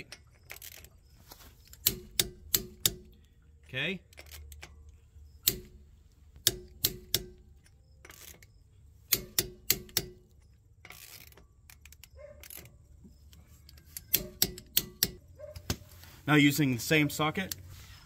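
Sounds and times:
torque wrench clicking: 1.7 - 3.3, 4.1 - 5.8, 6.4 - 12.7, 13.3 - 15.2.

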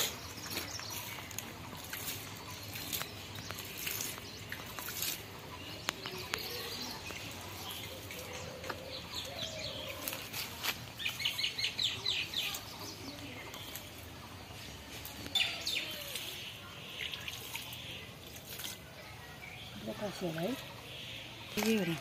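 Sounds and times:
hand tool scraping soil: 0.0 - 7.1, 9.5 - 14.0
birds chirping: 0.0 - 22.0.

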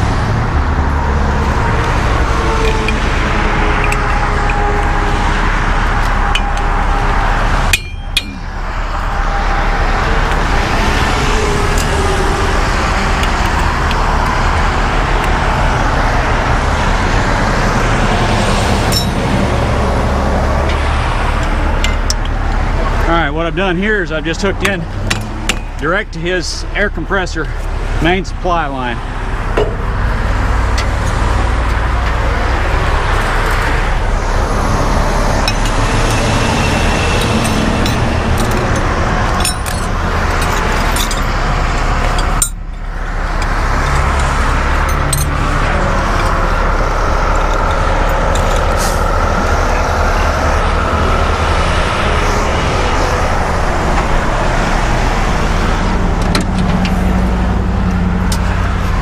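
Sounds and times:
diesel truck engine idling: 0.0 - 59.0
traffic rushing past: 0.0 - 59.0.

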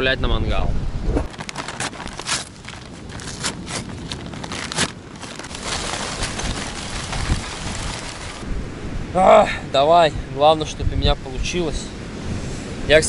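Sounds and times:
paper bag tearing and rustling: 1.3 - 8.4
charcoal pouring into metal: 5.2 - 8.4.

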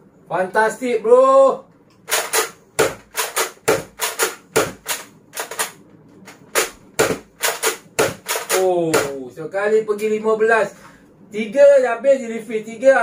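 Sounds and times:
toy blaster plastic clacks: 3.1 - 5.8, 7.4 - 8.6.

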